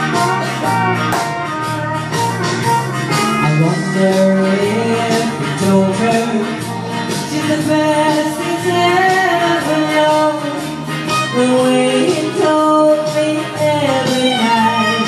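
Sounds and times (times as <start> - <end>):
pop backing track: 0.0 - 15.0
woman singing into a microphone: 3.7 - 15.0.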